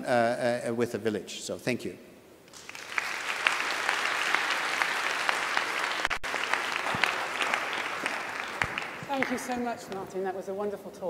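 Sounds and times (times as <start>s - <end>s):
audience applause: 2.5s - 9.7s.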